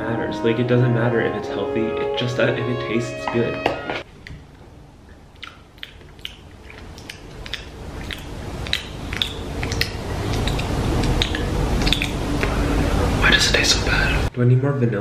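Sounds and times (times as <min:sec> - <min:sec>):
low background rumble: 0:06.5 - 0:14.3.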